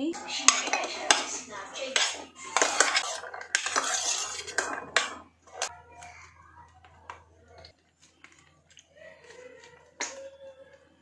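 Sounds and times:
metal spoon scraping steel bowl: 0.2s - 5.8s.

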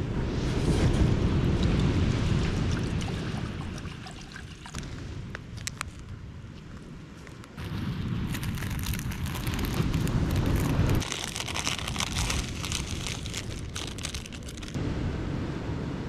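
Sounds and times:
wind rumble on microphone: 0.0s - 16.0s
saucepan crackling on coals: 4.7s - 14.8s.

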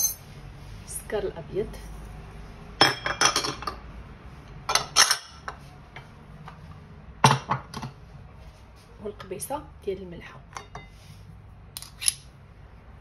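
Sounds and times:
utensils clinking on glass bowl: 0.0s - 0.2s, 4.7s - 5.4s.

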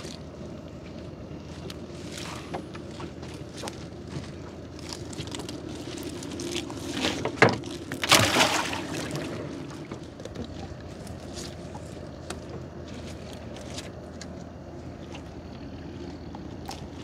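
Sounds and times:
steady low hum: 0.0s - 17.0s
water splashing and dripping: 7.2s - 10.7s.

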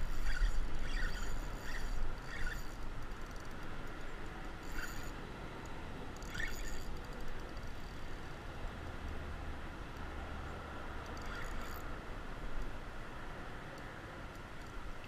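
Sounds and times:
fishing reel scraping clicks: 0.0s - 5.2s, 6.1s - 8.2s, 11.0s - 12.0s
low steady rumble: 0.0s - 15.0s.

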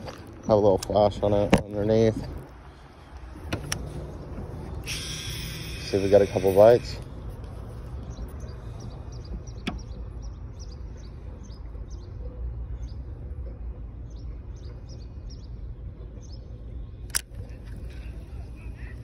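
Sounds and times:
low outdoor rumble: 0.0s - 19.0s.

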